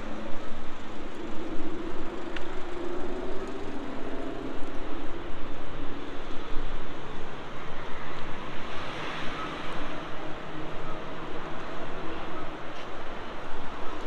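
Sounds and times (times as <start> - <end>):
city road traffic: 0.0 - 14.0.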